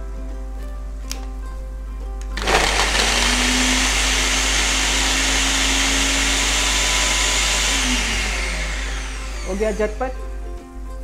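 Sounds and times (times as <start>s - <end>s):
electric food chopper grinding: 2.4s - 10.2s.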